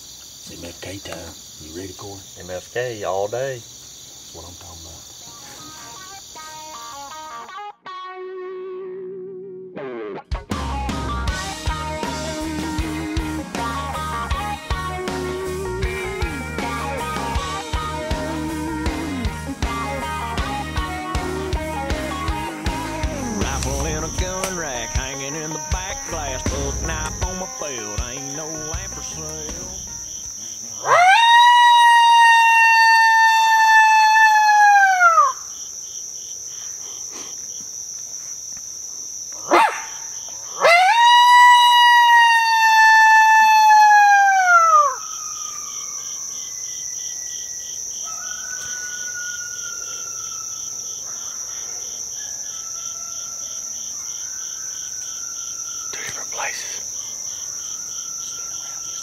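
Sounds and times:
crickets and insects buzzing: 0.0 - 7.7, 10.4 - 59.0
coyote howler call: 30.8 - 35.5, 39.4 - 46.6, 48.0 - 50.7.

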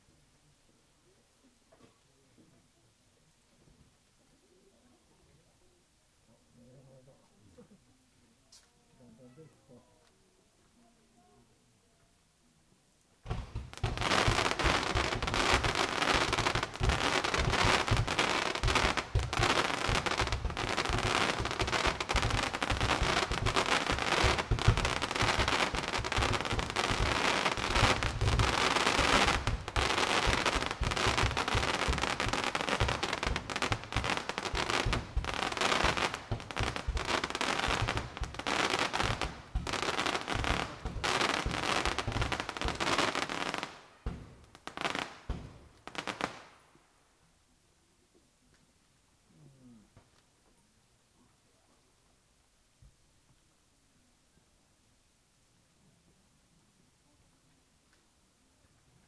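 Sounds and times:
fireworks crackling and banging: 13.2 - 46.7.

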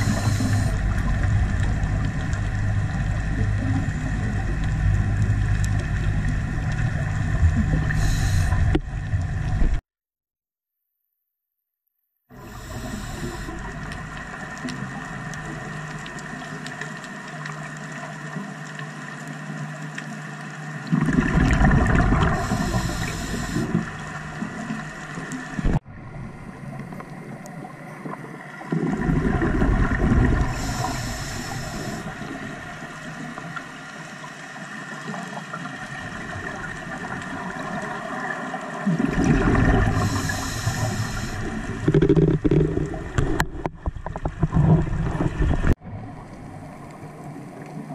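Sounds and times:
steady underwater hum: 0.0 - 9.8, 12.3 - 47.9
diver exhaling bubbles underwater: 20.8 - 32.7, 35.9 - 47.9.

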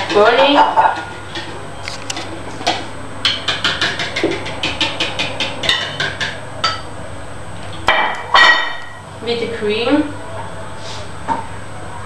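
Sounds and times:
utensil knocking against bowl: 0.0 - 6.8.

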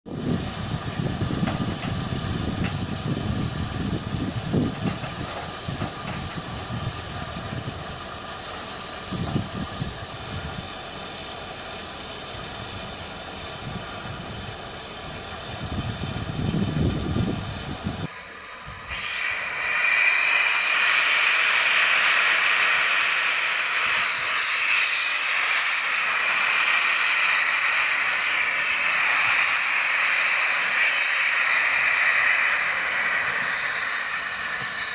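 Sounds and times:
loud steam hiss: 0.1 - 34.9
low uneven rumble: 0.2 - 18.1.

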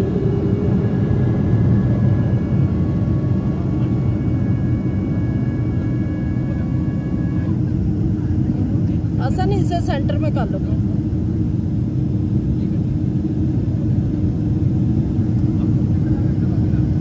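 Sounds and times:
faint whining tones: 0.0 - 11.5
jet cabin engine rumble: 0.0 - 17.0.

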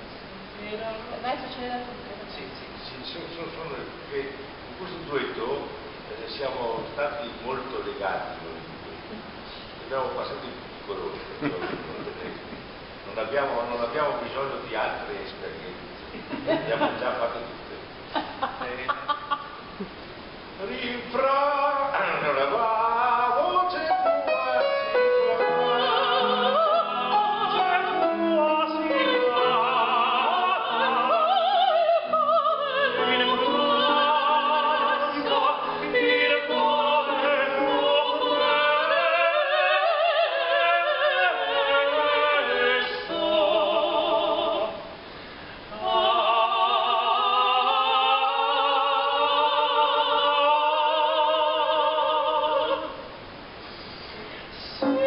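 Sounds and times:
operatic singing with vibrato: 18.5 - 53.6, 54.7 - 55.0
piano accompaniment: 23.8 - 31.2.

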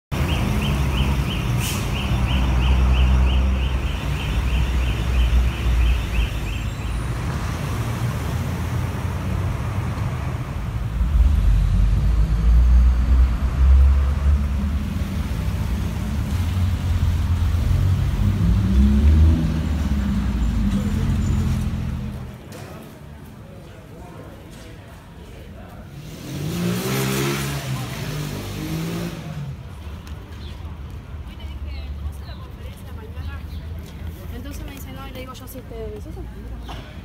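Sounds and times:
traffic engine rumble: 0.1 - 37.0
vehicle pulling away: 0.2 - 22.4, 26.0 - 29.8.

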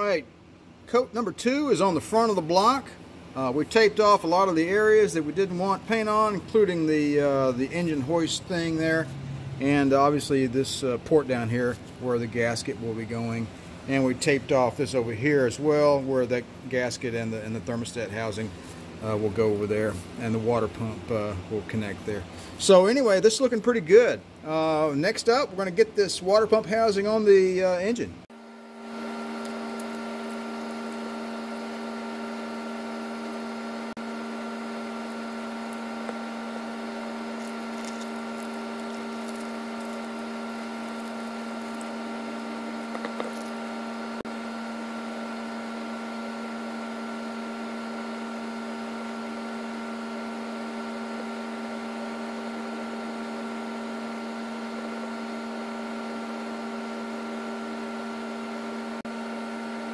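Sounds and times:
small electric motor humming: 28.3 - 59.9.

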